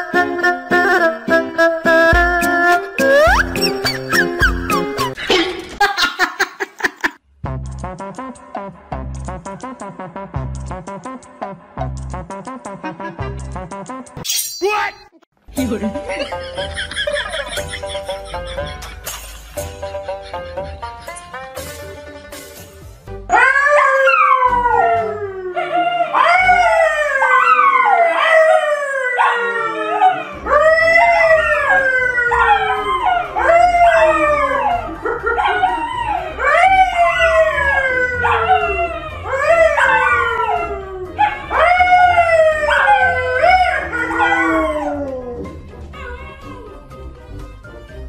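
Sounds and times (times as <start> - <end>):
dogs howling: 23.3 - 47.0
man howling: 29.2 - 46.8.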